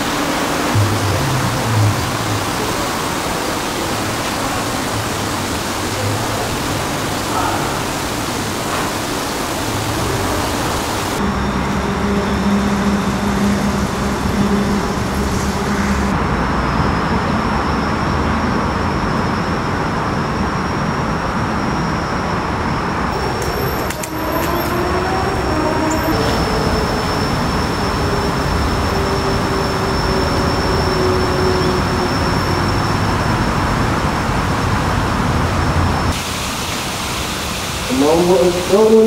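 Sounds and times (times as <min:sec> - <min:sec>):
outdoor traffic-like rumble: 0:00.0 - 0:39.0.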